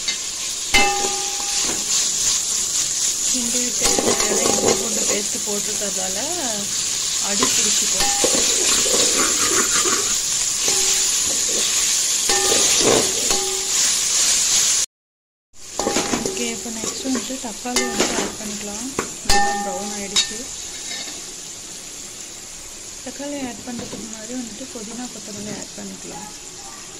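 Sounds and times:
onions sizzling in oil: 0.0 - 14.9, 15.6 - 26.9
metal spoon scraping pot: 7.4 - 11.6.

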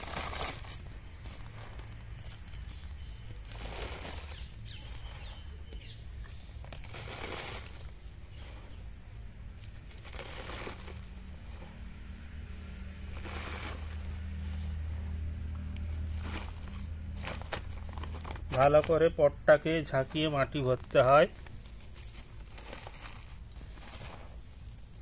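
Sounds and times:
soil scooped and poured: 0.0 - 12.0, 12.8 - 25.0.

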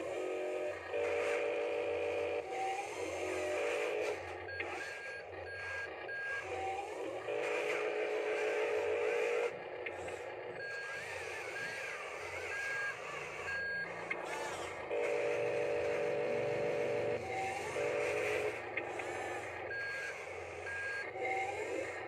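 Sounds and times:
toy electric motor whirring: 0.0 - 22.0.

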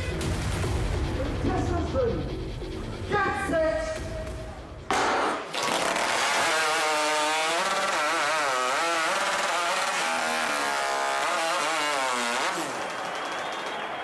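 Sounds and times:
chainsaw cutting through a log: 4.9 - 13.6.

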